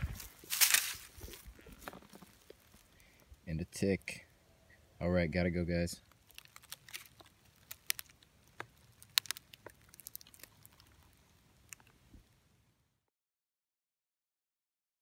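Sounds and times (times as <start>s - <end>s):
dry leaves and twigs crackling: 0.0s - 3.6s, 5.9s - 12.1s.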